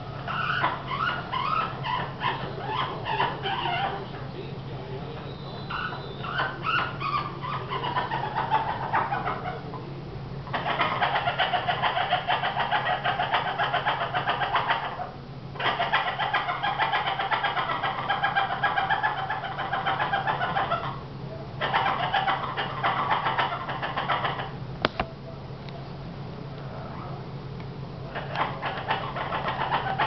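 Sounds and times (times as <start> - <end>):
parrot wavering call: 0.0 - 4.1, 5.2 - 9.7, 10.5 - 21.0, 28.1 - 30.0.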